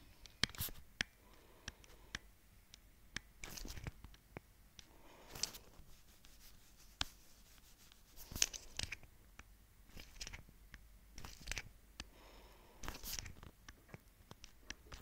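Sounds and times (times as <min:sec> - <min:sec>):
stylus scraping: 0:03.2 - 0:04.2, 0:04.8 - 0:09.1, 0:09.9 - 0:10.5, 0:12.8 - 0:15.0.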